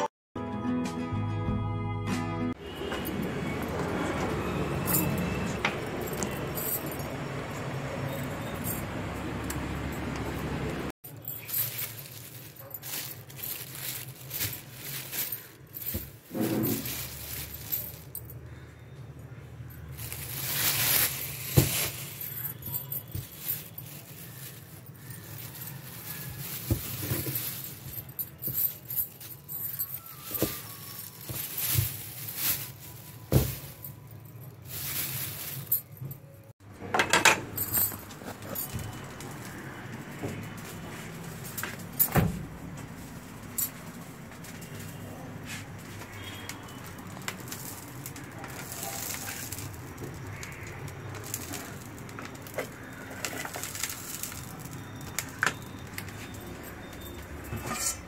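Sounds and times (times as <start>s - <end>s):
rustling: 11.1s - 18.7s, 19.8s - 36.3s, 37.6s - 57.8s
steel kitchenware knocks and clinks: 57.5s - 58.0s.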